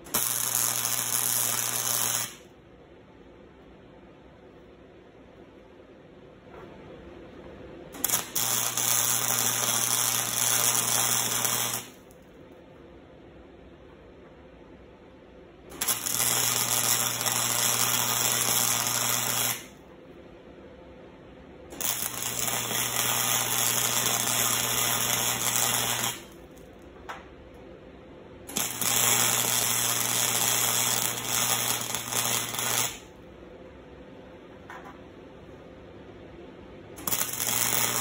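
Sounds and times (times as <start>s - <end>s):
welder low hum: 0.0s - 2.5s, 7.2s - 12.2s, 15.6s - 19.9s, 21.7s - 26.6s, 28.4s - 33.5s, 37.0s - 38.0s
welding arc crackling: 0.0s - 2.5s, 8.0s - 12.1s, 15.7s - 19.8s, 21.7s - 26.7s, 28.5s - 33.2s, 37.0s - 38.0s.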